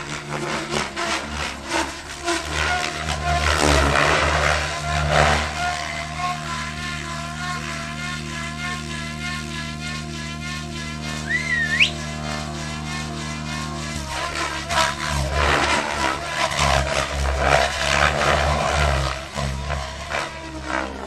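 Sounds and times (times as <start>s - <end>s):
model helicopter rotor whine: 0.0s - 21.0s
short rising whistle: 11.2s - 12.1s.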